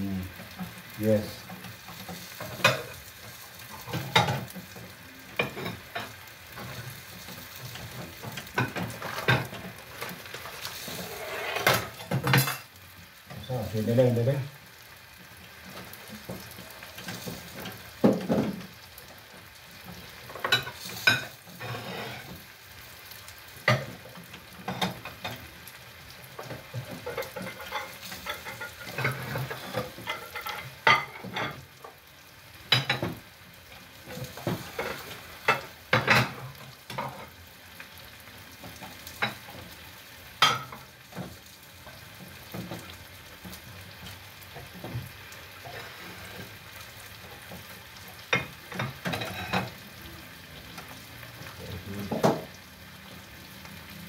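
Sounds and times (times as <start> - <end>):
greens sizzling in a pan: 0.0 - 54.0
wooden stick scraping steel pot: 10.9 - 11.7.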